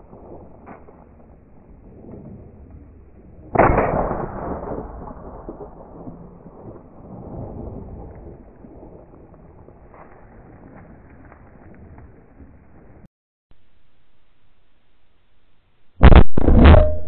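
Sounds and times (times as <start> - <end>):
shotgun shot: 3.6 - 6.2, 16.0 - 17.0.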